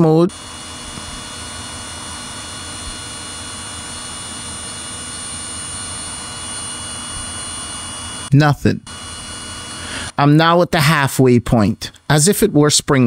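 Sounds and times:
drone propellers whirring: 0.2s - 10.2s.

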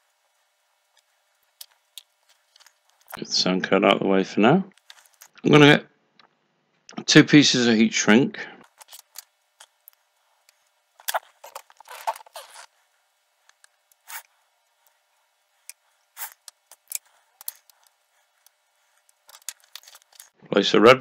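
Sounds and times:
cables rustling and scraping: 0.0s - 3.2s, 4.7s - 5.4s, 8.6s - 20.4s.

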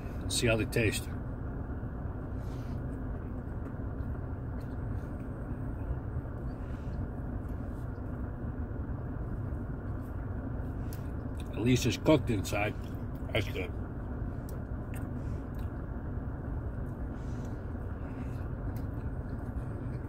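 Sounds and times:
car engine rumble inside cabin: 0.0s - 20.0s
man chewing: 2.8s - 8.2s, 14.4s - 16.0s, 16.6s - 20.0s.

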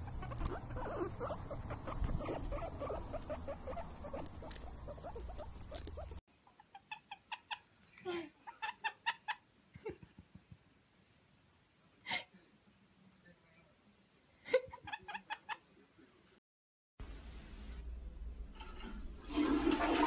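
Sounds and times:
parrot calling: 0.0s - 7.7s.

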